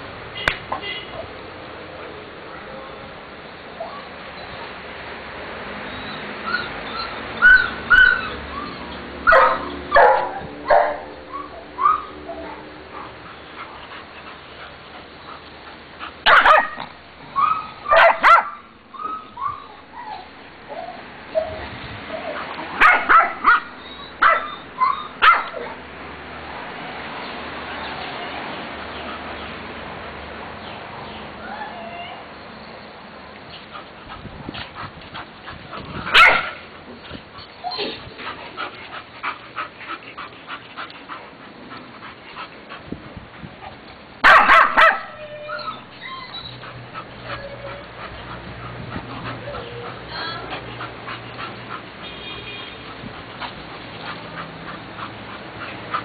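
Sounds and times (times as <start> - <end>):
dog yipping and whining: 5.9 - 10.1, 11.3 - 12.6, 17.3 - 25.7, 37.4 - 38.2, 44.3 - 48.1, 49.3 - 50.3
dogs barking playfully: 9.2 - 15.4, 16.0 - 19.6, 22.0 - 25.8, 33.7 - 43.0, 43.6 - 56.0.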